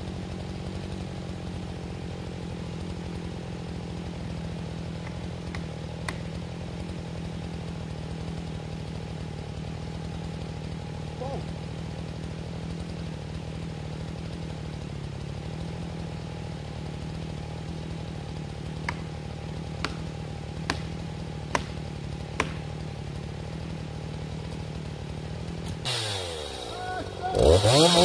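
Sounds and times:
chainsaw idling: 0:00.0 - 0:28.0
sharp knocks: 0:19.8 - 0:21.8, 0:22.4 - 0:22.7.

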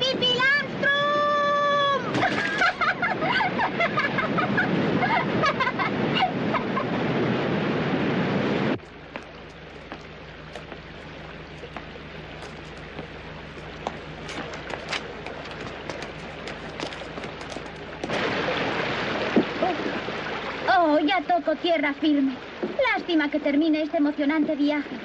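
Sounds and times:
waterfall rushing: 0:06.0 - 0:20.9.

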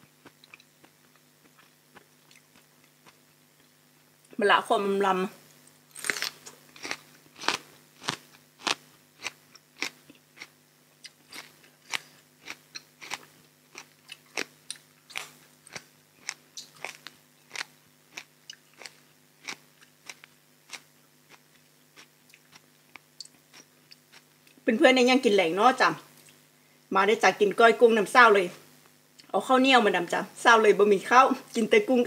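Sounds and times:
chewing crisp food: 0:00.0 - 0:03.8, 0:05.5 - 0:24.6.

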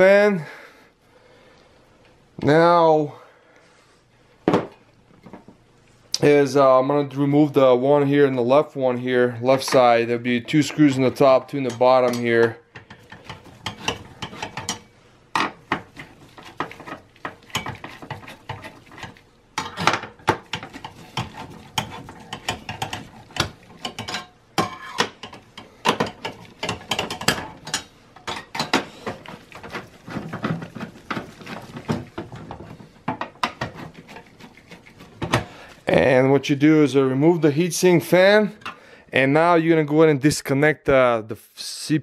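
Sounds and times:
small metal scrapes: 0:33.5 - 0:35.3.

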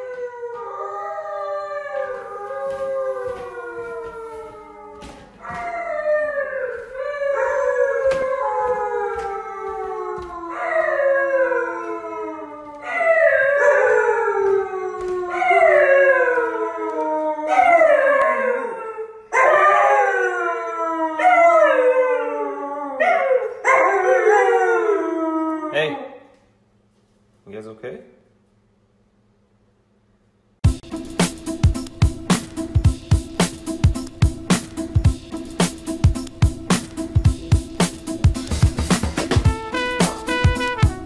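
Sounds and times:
husky howling: 0:00.0 - 0:26.2
footsteps on wooden stairs: 0:01.6 - 0:11.2, 0:13.8 - 0:17.2.

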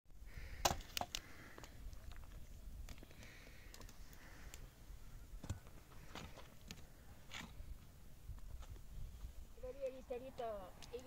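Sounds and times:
twigs snapping in wood fire: 0:00.6 - 0:04.7.

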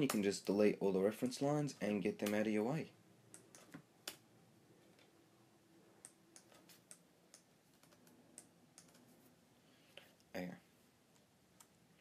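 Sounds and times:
mouse and keyboard clicks: 0:06.0 - 0:09.1.

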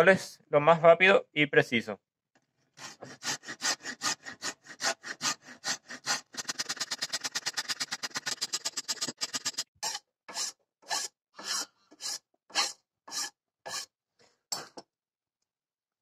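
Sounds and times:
wood rasp filing wood: 0:02.8 - 0:09.6, 0:10.3 - 0:13.9.

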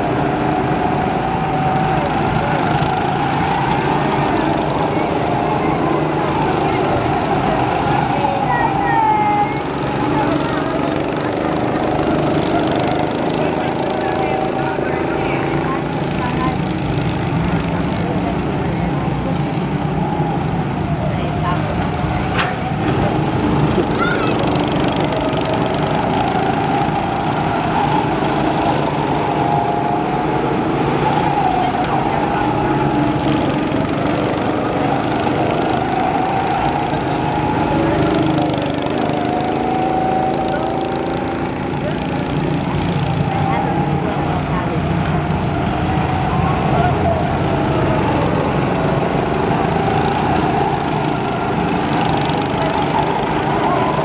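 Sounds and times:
go-kart engines droning: 0:00.0 - 0:54.0.

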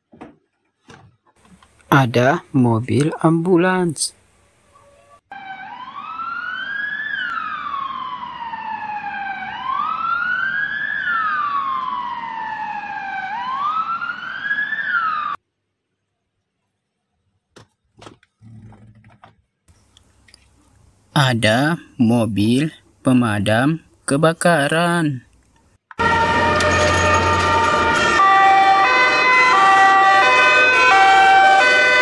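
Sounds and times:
ambulance siren wailing: 0:04.8 - 0:15.4, 0:26.0 - 0:32.0.

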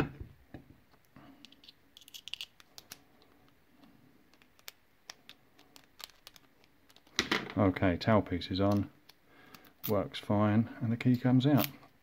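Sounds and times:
small metal clicks and ticks: 0:04.3 - 0:07.2.

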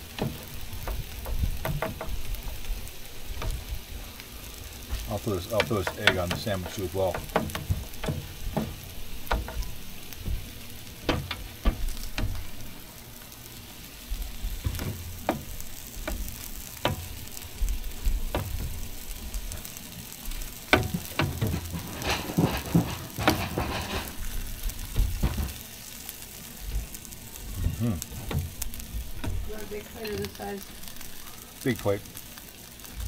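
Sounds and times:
food sizzling on griddle: 0:00.0 - 0:33.0
sharp clicks and knocks: 0:00.1 - 0:02.7, 0:05.0 - 0:12.6, 0:14.5 - 0:19.7, 0:20.7 - 0:25.7.

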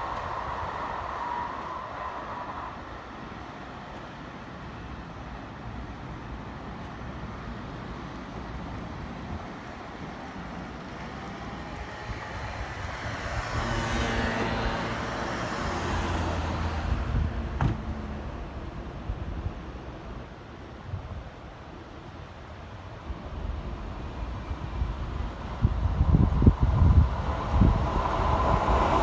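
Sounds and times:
train wheel hiss: 0:00.0 - 0:13.6, 0:21.7 - 0:29.0.

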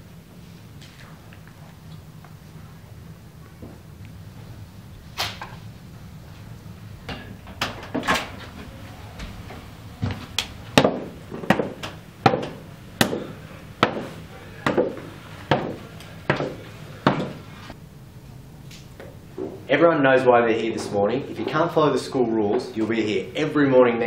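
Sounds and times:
footsteps on wooden stairs: 0:07.1 - 0:17.8.

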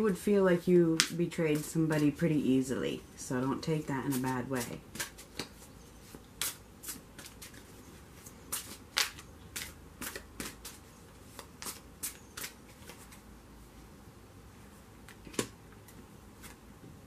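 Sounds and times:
cards being shuffled: 0:04.1 - 0:13.2.

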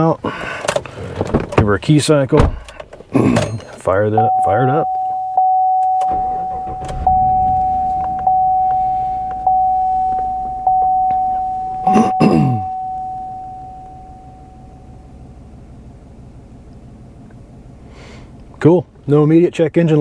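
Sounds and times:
truck engine starting and idling: 0:02.0 - 0:20.0
warning chime dinging: 0:03.5 - 0:15.6
short loud falling pitch sound: 0:06.1 - 0:11.1.

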